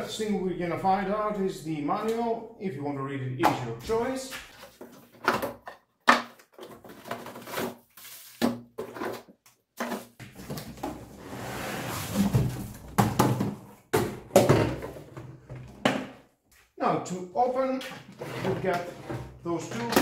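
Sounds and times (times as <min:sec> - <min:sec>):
cardboard scraping rustle: 0:11.1 - 0:12.6.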